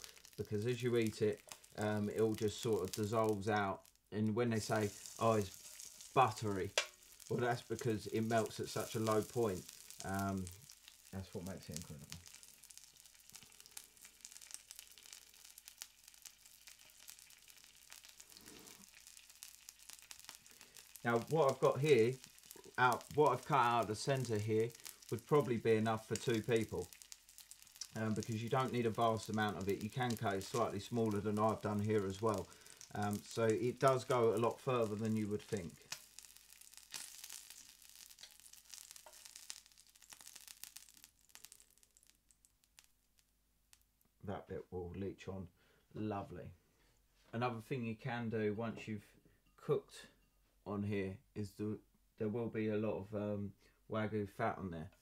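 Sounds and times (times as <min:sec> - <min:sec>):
beef sizzling in fat: 0:00.0 - 0:44.0.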